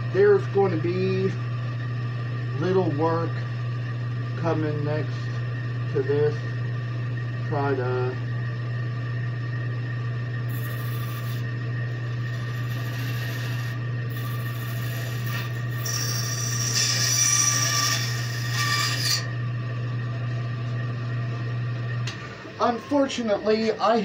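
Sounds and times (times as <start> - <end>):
machine hum: 0.0 - 24.0
bandsaw cutting wood: 12.4 - 19.3.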